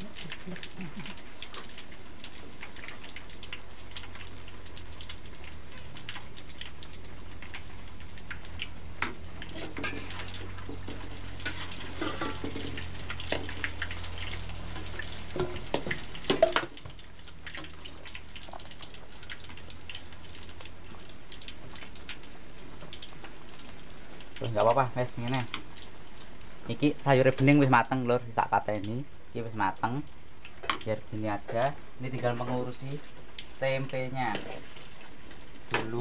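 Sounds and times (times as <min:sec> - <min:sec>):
food sizzling in a wok: 0:00.0 - 0:36.0
metal spatula scraping a wok: 0:09.4 - 0:13.6.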